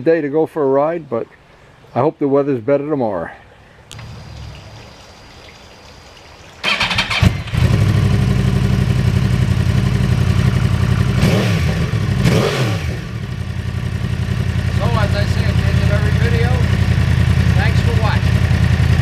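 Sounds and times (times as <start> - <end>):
motorcycle engine idling: 3.9 - 5.2, 6.6 - 19.0
motorcycle starter cranking: 6.6 - 8.2
engine revving: 6.6 - 19.0.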